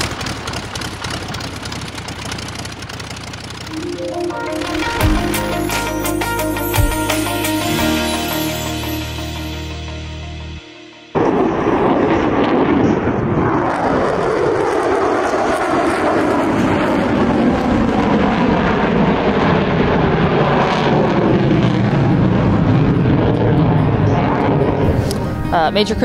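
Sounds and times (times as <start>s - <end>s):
jet passing overhead: 7.0s - 26.0s.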